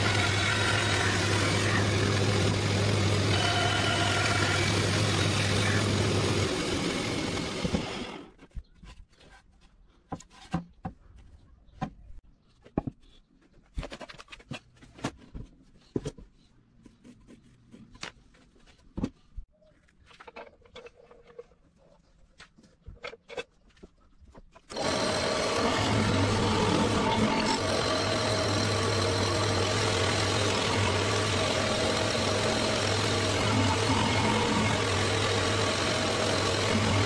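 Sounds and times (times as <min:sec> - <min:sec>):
power tool motor running: 0:00.0 - 0:08.3, 0:24.7 - 0:37.0.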